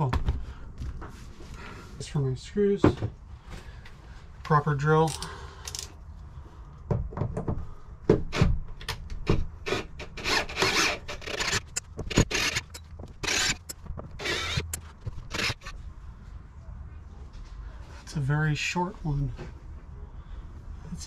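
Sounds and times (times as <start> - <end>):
scraping and rubbing: 10.0 - 15.8
tool clicks and taps: 10.6 - 15.7.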